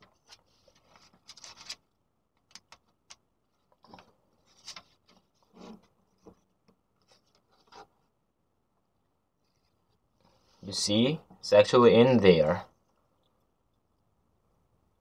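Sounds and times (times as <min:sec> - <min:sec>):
paper banknote crinkling: 0:00.1 - 0:01.9.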